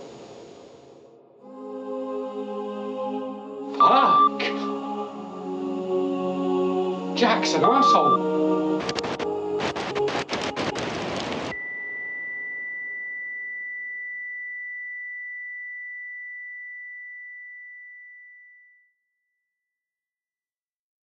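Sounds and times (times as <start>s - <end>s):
high-pitched electronic tone: 3.8s - 4.9s, 7.6s - 8.2s, 11.5s - 16.2s.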